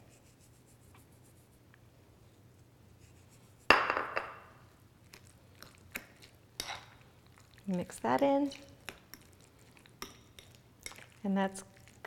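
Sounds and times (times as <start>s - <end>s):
ceramic plate clinking on countertop: 3.7s - 4.5s.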